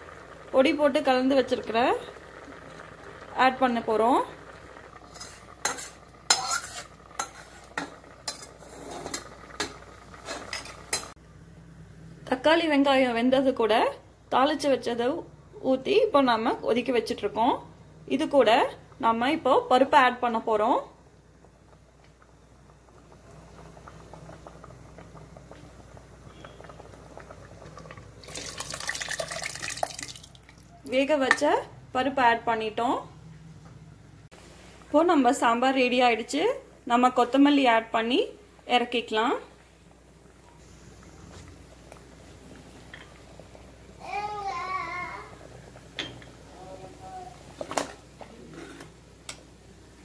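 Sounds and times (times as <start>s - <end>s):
thick stew bubbling in a pot: 0.0s - 33.5s, 34.3s - 50.0s
sizzling: 0.0s - 50.0s
spatula scraping a metal pan: 5.1s - 9.3s
wet pouring into a pot: 23.1s - 30.8s.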